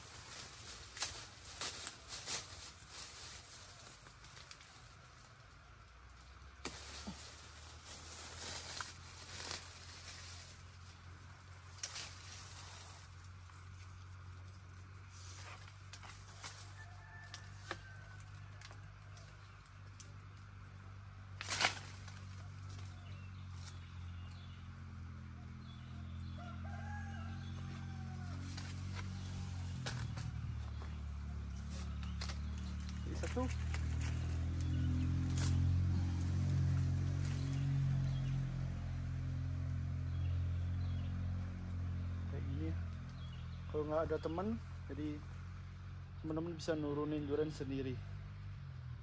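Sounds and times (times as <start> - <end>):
low hum: 0.0 - 43.8
rooster crowing: 16.6 - 18.9, 26.2 - 29.7
loud rustling crack: 21.4 - 22.3.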